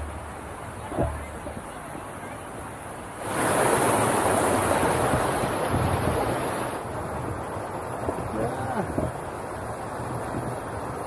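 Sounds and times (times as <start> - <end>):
wave rushing over rocks: 0.0 - 11.0.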